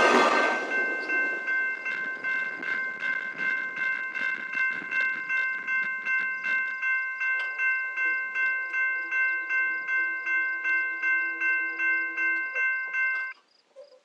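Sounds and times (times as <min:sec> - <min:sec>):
passing train rolling noise: 0:00.0 - 0:13.3
level crossing bell ringing: 0:00.0 - 0:13.4.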